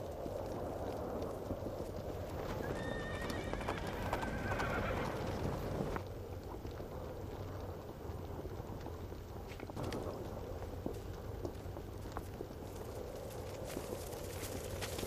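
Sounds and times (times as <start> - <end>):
horse hoofbeats: 0.0 - 15.0
horse whinnying: 2.6 - 6.0.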